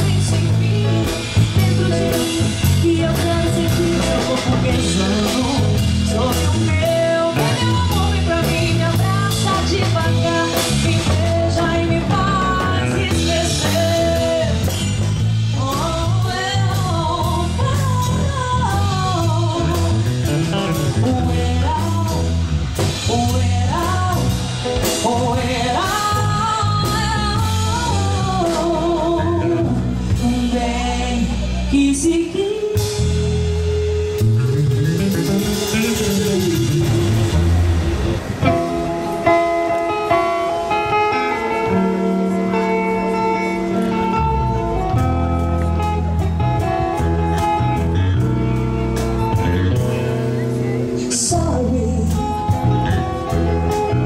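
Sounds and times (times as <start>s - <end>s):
woman singing: 0.0s - 34.2s, 50.3s - 54.0s
bass guitar: 0.0s - 54.0s
drum kit: 0.0s - 54.0s
electric guitar: 0.0s - 54.0s.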